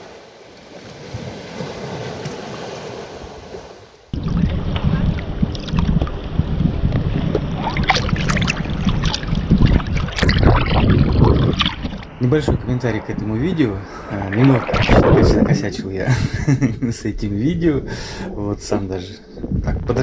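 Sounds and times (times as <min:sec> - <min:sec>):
water sloshing against camera: 0:04.1 - 0:16.4
sharp splashes: 0:07.1 - 0:16.0.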